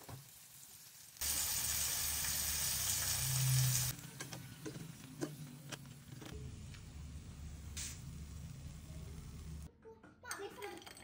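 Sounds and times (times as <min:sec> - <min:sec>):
chicken sizzling in hot oil: 0:00.0 - 0:04.0.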